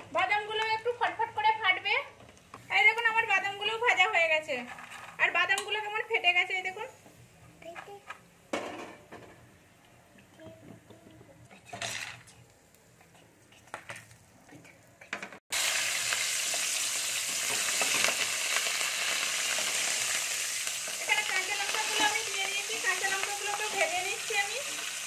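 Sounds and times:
chillies sizzling in hot oil: 0.0 - 7.4, 15.5 - 25.0.

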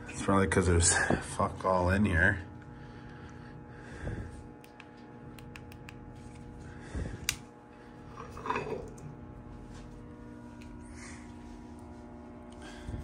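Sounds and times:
electrical machinery hum: 0.0 - 13.0
metal cover clanking and scraping: 8.2 - 9.0.

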